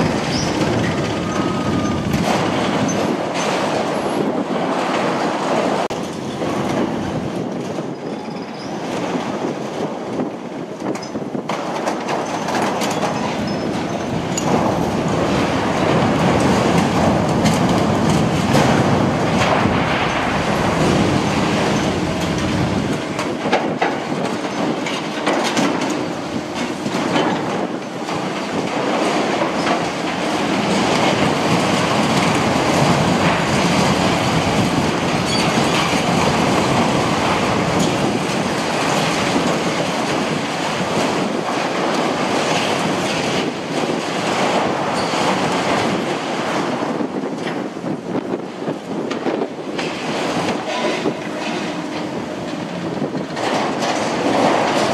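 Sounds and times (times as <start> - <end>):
excavator engine running: 0.0 - 4.0, 12.5 - 40.1, 49.0 - 54.9
metal clanking and scraping: 49.1 - 54.9.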